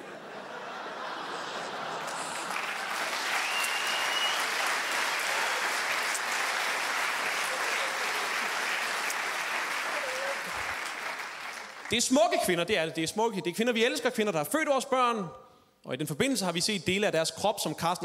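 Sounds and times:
audience applauding: 0.9 - 12.5.

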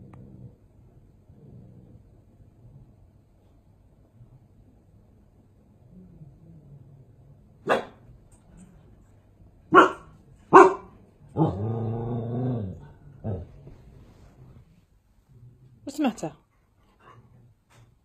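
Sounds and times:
dog growling: 0.0 - 2.9, 11.3 - 15.8
dog barking: 7.6 - 8.0, 9.7 - 11.0.

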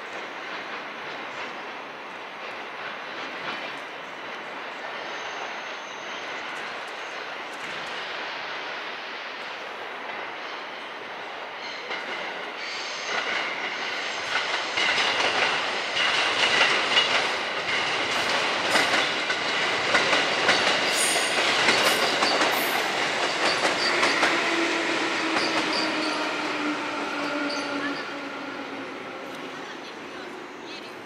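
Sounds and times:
train wheels clattering on rails: 0.1 - 5.5, 11.5 - 29.6
high wheel squeal: 23.3 - 28.6.

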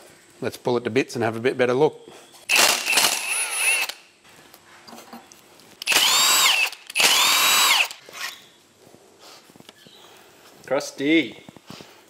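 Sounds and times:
power ratchet whining: 2.5 - 4.0, 5.8 - 8.4.

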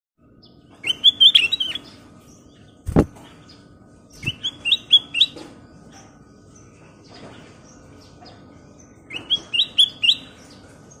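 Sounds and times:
sharp thump: 2.9 - 3.2
bulbul singing whistled notes: 4.2 - 5.4, 9.1 - 10.5.

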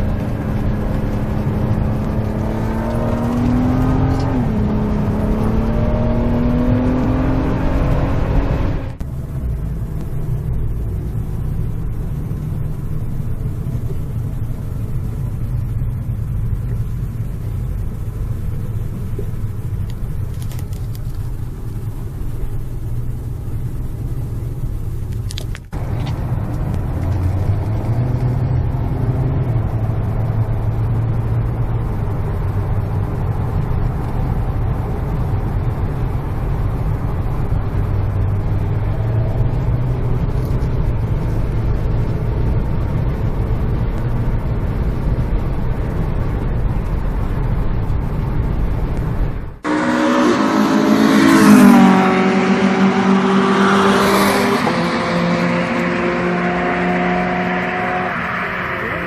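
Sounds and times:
car engine drone in cabin: 0.0 - 59.0
race cars passing: 49.6 - 59.0.

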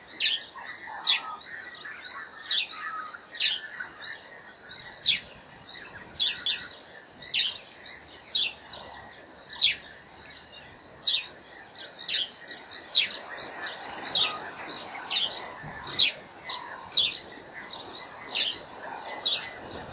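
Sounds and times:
faint outdoor background noise: 0.0 - 19.9.

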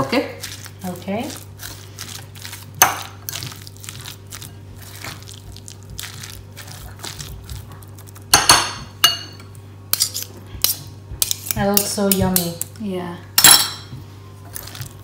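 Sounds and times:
spoon squelching and scraping: 0.0 - 12.5, 13.4 - 15.0
spoon clinking glass bowl: 8.3 - 10.2.

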